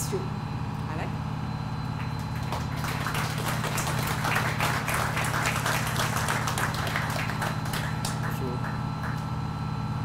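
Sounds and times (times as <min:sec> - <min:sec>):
audience applauding: 0:02.0 - 0:09.3.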